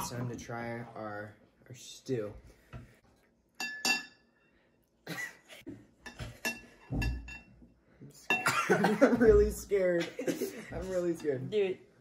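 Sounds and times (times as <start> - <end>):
spoons clinking on ceramic bowls: 3.6 - 4.3, 6.0 - 7.5.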